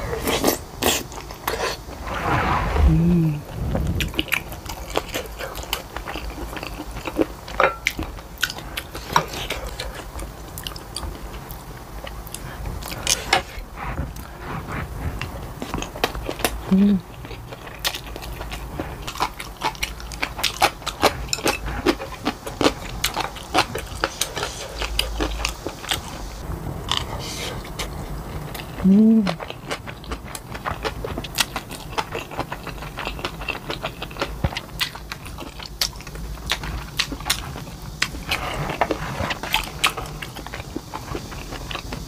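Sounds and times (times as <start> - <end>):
person humming: 2.8 - 3.6, 16.7 - 17.0, 28.8 - 29.4
chewing and mouth smacks: 27.8 - 42.0.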